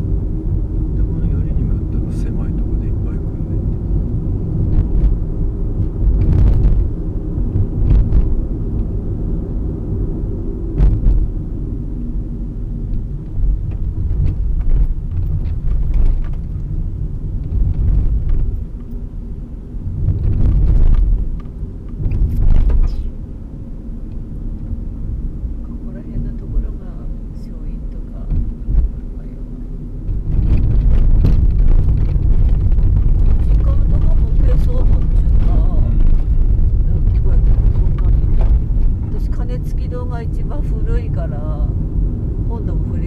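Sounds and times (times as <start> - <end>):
car engine and road rumble: 0.0 - 43.0
knocks and rattles: 30.1 - 39.0.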